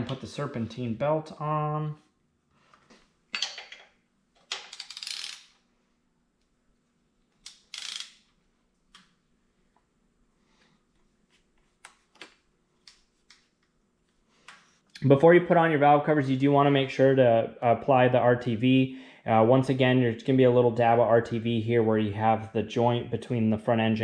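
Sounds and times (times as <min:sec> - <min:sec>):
ratchet wrench rattling: 0:04.5 - 0:05.6, 0:07.5 - 0:08.2.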